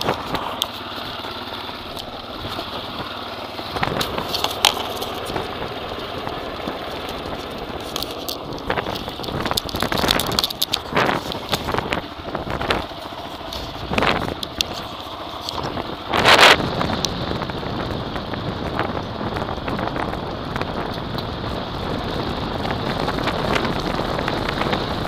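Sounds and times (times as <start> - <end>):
motorcycle riding on gravel: 0.0 - 25.0
wind buffeting microphone: 0.0 - 25.0
microphone handling noise: 7.0 - 16.9.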